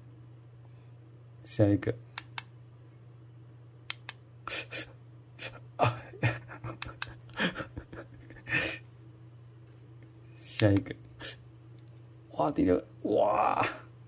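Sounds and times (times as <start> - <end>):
small clicks: 2.1 - 2.5, 3.9 - 4.2.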